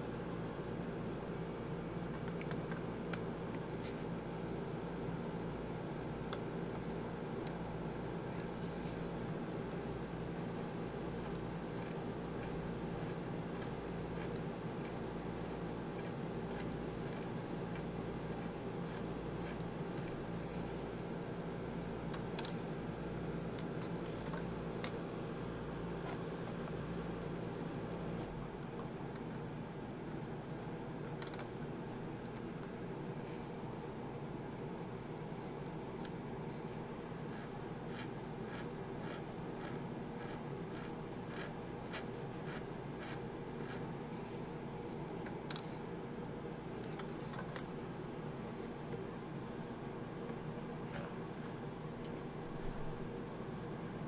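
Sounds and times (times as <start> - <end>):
steady background hum: 0.0 - 54.0.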